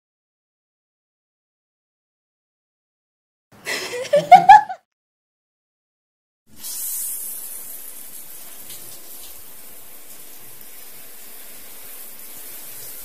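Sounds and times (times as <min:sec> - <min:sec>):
water running: 0:06.5 - 0:13.0.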